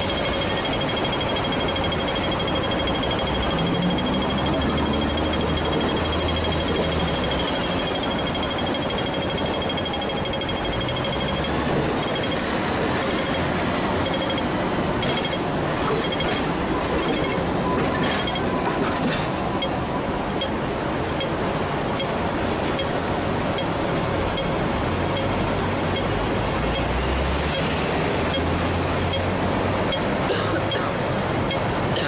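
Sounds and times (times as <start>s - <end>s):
crossing signal ticking: 0.0s - 18.8s, 19.5s - 32.0s
tram passing: 0.0s - 21.7s
street traffic noise: 0.0s - 32.0s.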